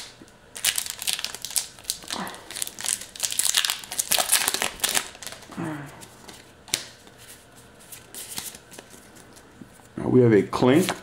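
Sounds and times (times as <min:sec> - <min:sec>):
foil wrapper crinkling and tearing: 0:00.0 - 0:05.6.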